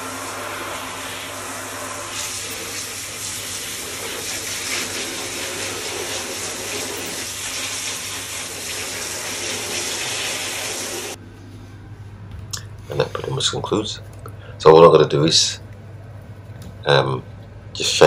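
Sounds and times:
shower head spraying water: 0.0 - 11.2.

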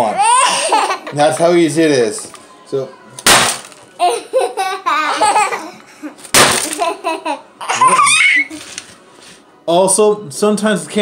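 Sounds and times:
candy slab crashing and breaking: 3.2 - 3.8, 6.3 - 6.8
child laughing and squealing: 7.6 - 8.6.

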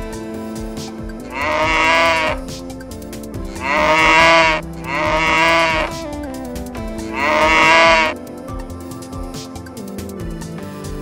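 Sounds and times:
background music with held notes: 0.0 - 11.0
cow mooing: 1.2 - 2.6, 3.4 - 6.1, 7.1 - 8.2.

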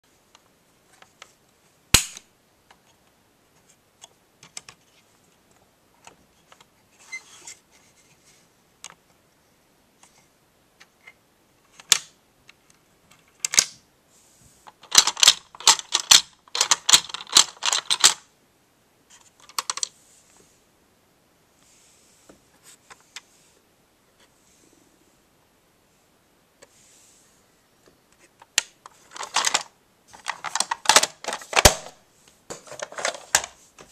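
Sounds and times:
plastic toy parts clicking: 13.2 - 13.7, 14.7 - 18.2, 19.4 - 19.9, 28.4 - 31.9.

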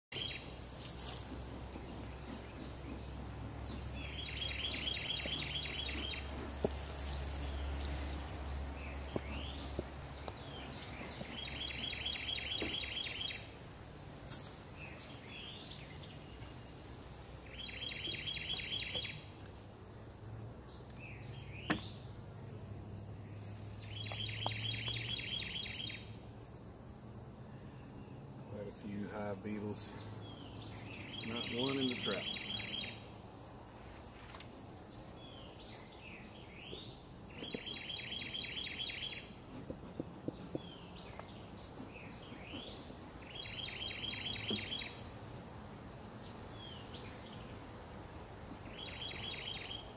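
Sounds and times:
songbird trilling: 0.2 - 1.2, 3.7 - 13.4, 17.5 - 19.3, 23.8 - 26.6, 30.2 - 33.1, 35.2 - 39.4, 40.6 - 45.0, 48.6 - 49.9.

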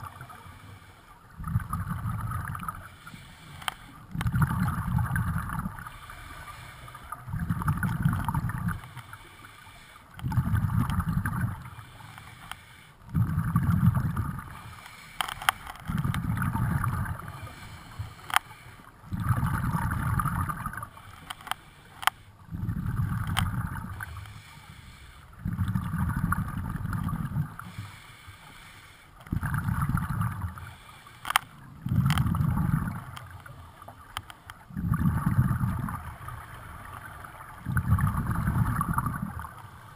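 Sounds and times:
exhaled bubbles rumbling: 1.3 - 2.9, 4.0 - 6.0, 7.0 - 9.0, 10.2 - 11.9, 13.0 - 14.7, 15.8 - 18.3, 19.0 - 21.0, 22.4 - 24.2, 25.3 - 27.7, 29.2 - 30.7, 31.6 - 39.9
sharp clicks: 14.8 - 16.2, 31.2 - 32.3
regulator breath hiss: 27.7 - 29.2.

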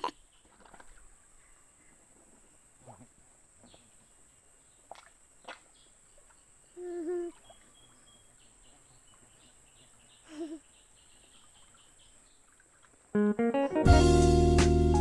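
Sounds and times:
faint high chirps: 6.2 - 12.0
plucked guitar music: 13.2 - 15.0.

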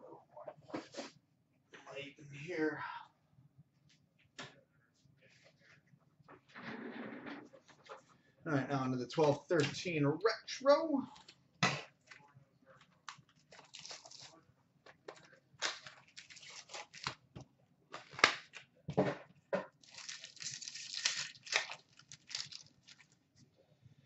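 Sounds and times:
card pack wrapper tearing: 13.5 - 14.4, 15.6 - 17.2, 19.8 - 23.2.

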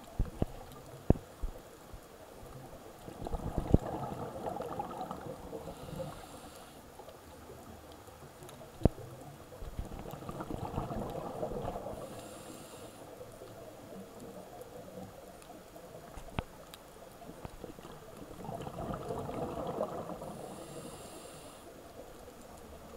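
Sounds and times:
burbling exhaled bubbles: 3.0 - 6.2, 9.7 - 12.1, 17.7 - 20.6
regulator inhale hisses: 5.6 - 6.9, 11.9 - 13.2, 20.3 - 21.8.

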